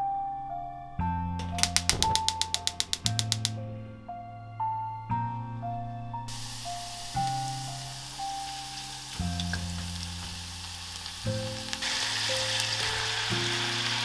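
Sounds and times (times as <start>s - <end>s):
soft background music: 0.0s - 14.0s
garlic sizzling in oil: 6.3s - 14.0s.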